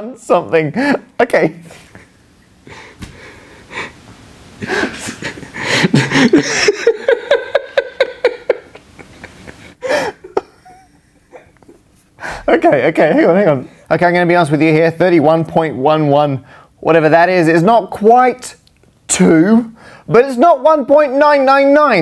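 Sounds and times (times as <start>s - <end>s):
man laughing hard: 4.6s - 11.8s.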